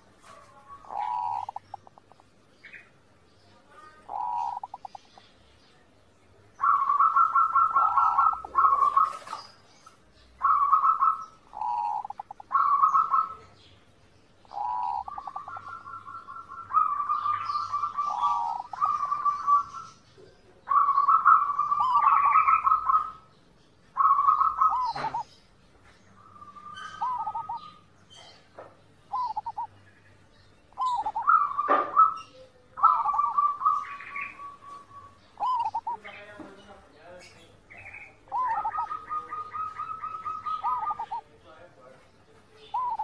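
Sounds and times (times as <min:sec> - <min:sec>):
dove cooing: 0:00.0 - 0:02.8, 0:03.9 - 0:05.2, 0:06.6 - 0:09.6, 0:10.4 - 0:13.7, 0:14.4 - 0:20.0, 0:20.6 - 0:23.3, 0:23.9 - 0:25.4, 0:26.2 - 0:28.4, 0:29.1 - 0:29.8, 0:30.7 - 0:36.3, 0:37.8 - 0:41.4, 0:42.6 - 0:43.0.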